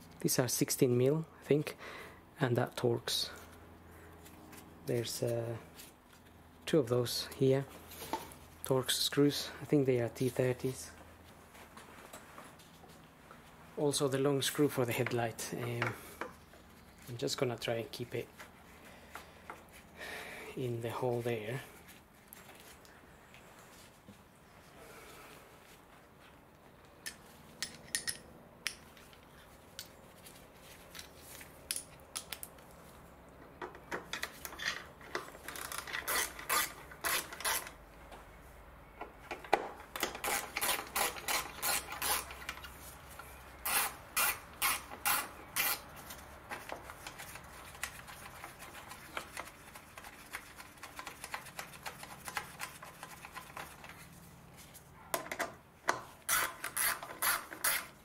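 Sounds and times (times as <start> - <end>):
hand ratchet clicking: 55.9 - 57.9.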